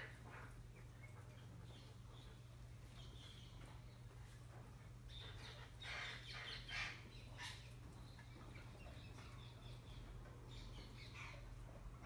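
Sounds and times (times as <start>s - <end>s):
low steady hum: 0.0s - 12.0s
parrots chirping: 5.1s - 12.0s.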